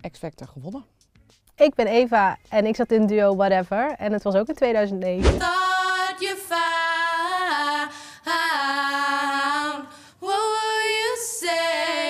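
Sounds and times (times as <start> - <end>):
women singing unaccompanied: 5.4 - 12.0.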